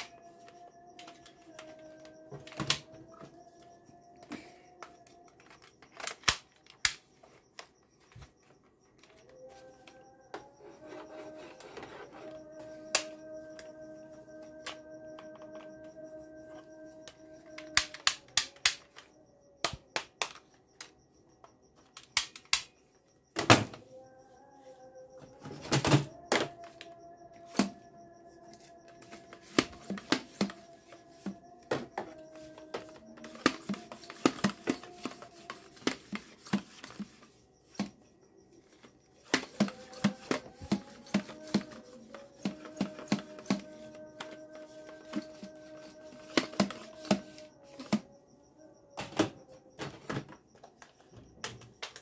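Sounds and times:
plastic toy rifle clicks: 5.4 - 7.0.

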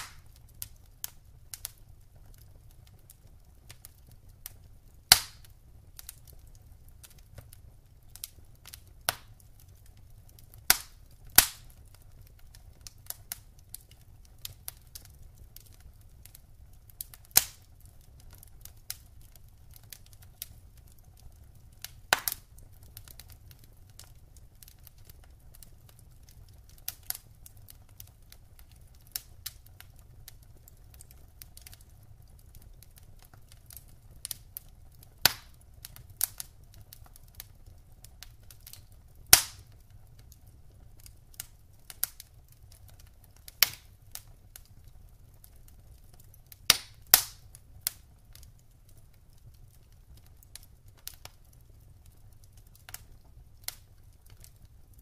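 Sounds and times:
logs crackling and popping: 0.0 - 55.0.

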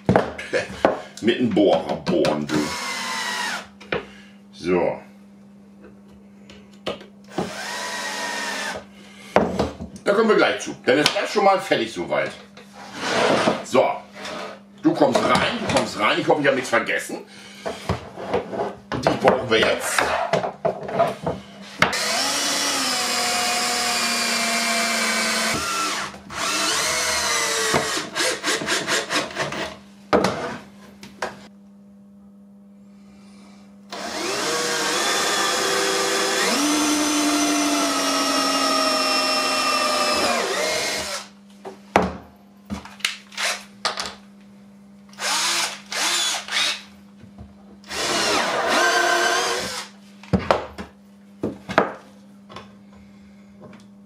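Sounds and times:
cordless drill drilling into wood: 2.6 - 3.7, 7.3 - 8.8, 21.9 - 29.3, 33.9 - 41.3, 45.2 - 46.8, 47.9 - 49.9.

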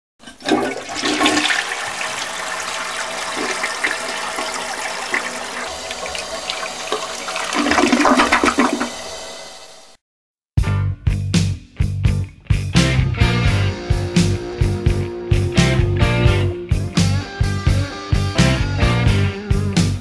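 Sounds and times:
toilet flushing: 0.2 - 10.0
rock song: 10.6 - 20.0.

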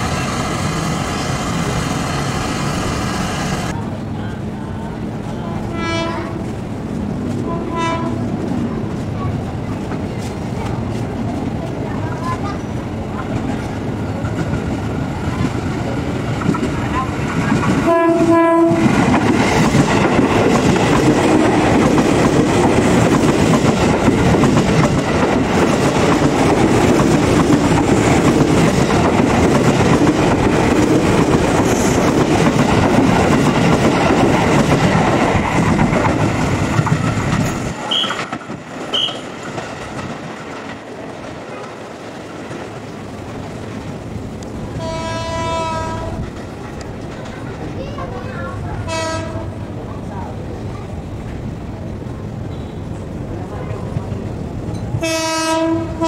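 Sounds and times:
train wheels on rails passing: 0.0 - 56.0
train horn blast: 5.7 - 6.5, 7.4 - 8.3, 17.8 - 19.0, 44.8 - 46.2, 48.9 - 49.5, 55.0 - 56.0.

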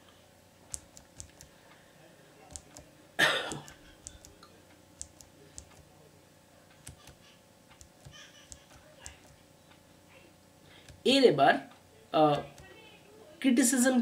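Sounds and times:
mouse and keyboard clicks: 0.7 - 1.5, 2.5 - 2.9, 3.5 - 4.4, 5.0 - 5.9, 6.7 - 9.4, 10.8 - 11.0.

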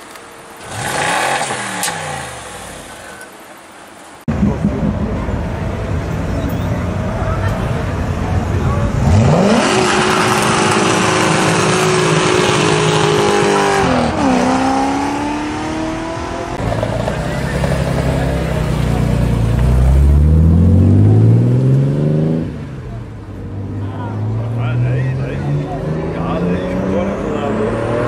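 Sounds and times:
car engine revving: 0.6 - 3.2, 7.8 - 28.0
car accelerating away: 8.7 - 28.0.

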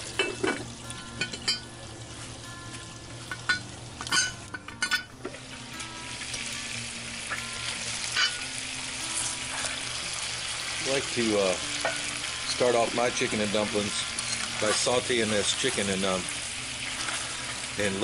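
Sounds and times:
chicken sizzling in oil: 0.0 - 4.5, 5.3 - 18.0
metal lid clinking: 0.2 - 1.7, 3.3 - 5.4, 8.2 - 8.4.

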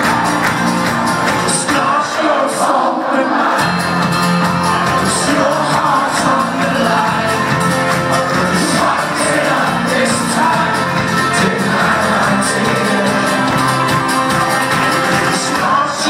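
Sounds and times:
folk-rock band playing live: 0.0 - 2.5, 3.5 - 16.0
crowd singing and shouting: 0.0 - 16.0.

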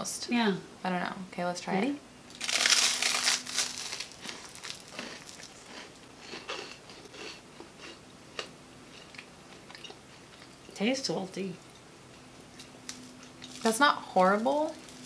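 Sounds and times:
toast crunching: 2.3 - 10.7, 11.6 - 13.8, 14.7 - 15.0
mouth chewing sounds: 4.2 - 10.6.

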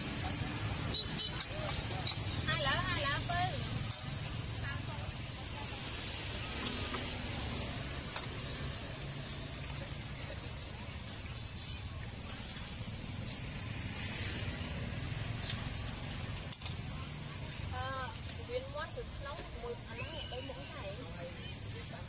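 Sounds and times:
sauce sizzling in a wok: 0.1 - 17.7.

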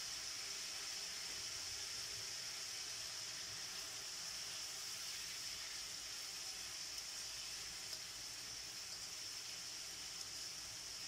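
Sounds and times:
meat sizzling in a wok: 0.0 - 11.0.

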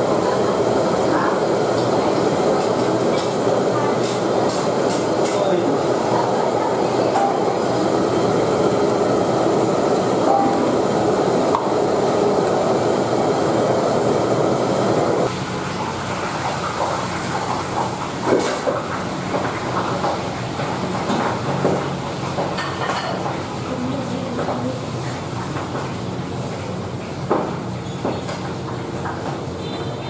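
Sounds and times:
gas wok burner roaring: 0.0 - 30.0.

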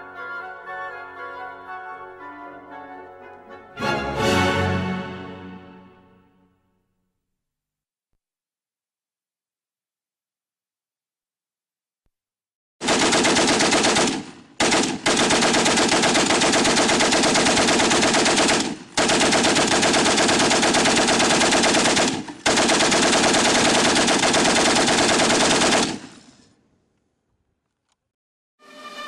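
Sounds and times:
machine gun automatic fire: 12.8 - 26.5.

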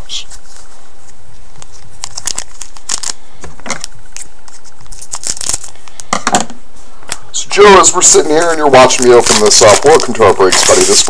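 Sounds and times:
wrapper crinkling and tearing: 1.6 - 6.1, 7.6 - 11.0.

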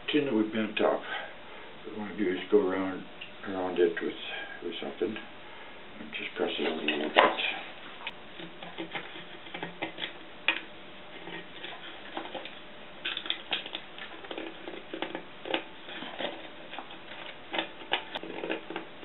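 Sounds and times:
metal tool scraping tin can rim: 8.4 - 19.0.

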